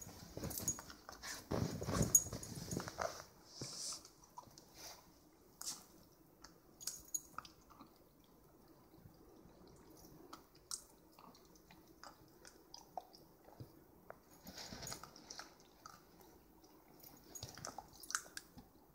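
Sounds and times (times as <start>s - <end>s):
puppy licking and gnawing ice: 6.4s - 13.7s, 14.4s - 18.7s.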